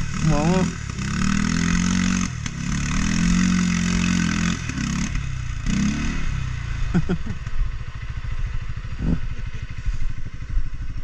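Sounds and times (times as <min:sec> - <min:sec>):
quad engine revving: 0:00.0 - 0:07.6.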